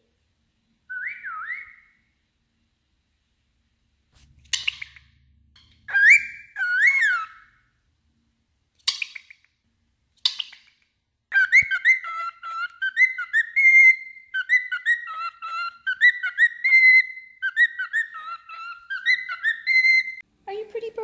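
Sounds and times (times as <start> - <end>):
cockatiel chirping and warbling: 0.9 - 2.0, 4.4 - 5.1, 5.9 - 7.6, 8.8 - 9.5, 10.2 - 20.2.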